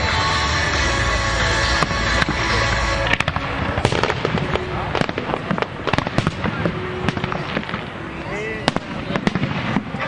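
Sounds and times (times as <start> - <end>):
fireworks bangs and crackles: 0.0 - 10.0.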